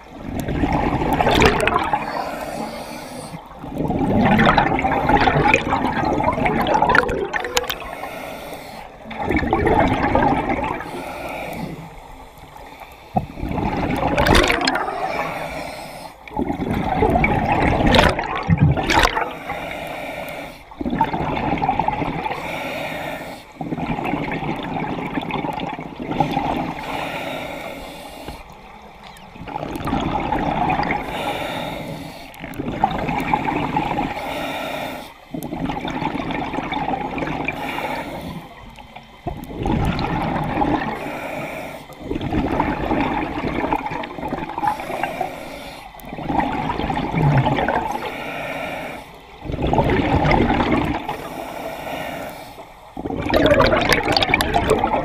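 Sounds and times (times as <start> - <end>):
exhaled bubbles underwater: 0.0 - 19.8, 20.4 - 27.1, 28.3 - 34.5, 35.3 - 52.1, 52.9 - 55.0.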